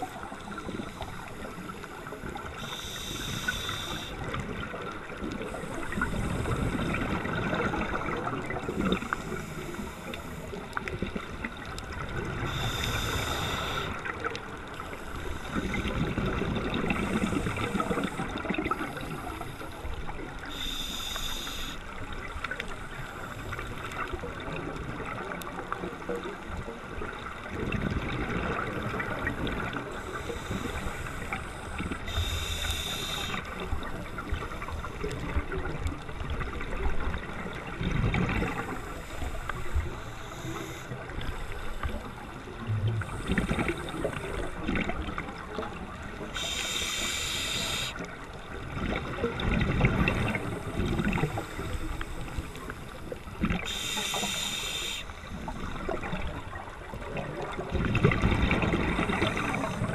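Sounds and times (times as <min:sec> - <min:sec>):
regulator hiss on inhales: 0:00.0 - 0:04.4, 0:08.7 - 0:10.6, 0:12.4 - 0:14.1, 0:14.8 - 0:16.0, 0:16.9 - 0:22.0, 0:29.9 - 0:35.0, 0:38.5 - 0:44.6, 0:46.2 - 0:48.1, 0:50.4 - 0:55.8, 0:59.0 - 0:59.9
steady fine crackle: 0:00.0 - 0:59.9.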